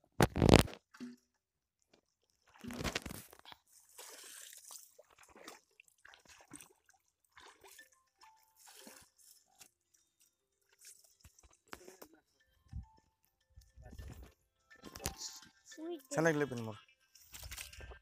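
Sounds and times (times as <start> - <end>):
muddy water splashing and sloshing: 2.1 - 12.0, 16.4 - 18.0.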